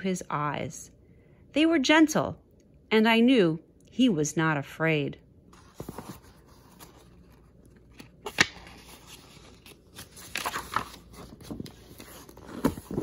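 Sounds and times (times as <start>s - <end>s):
paper rustling and crinkling: 5.5s - 13.0s.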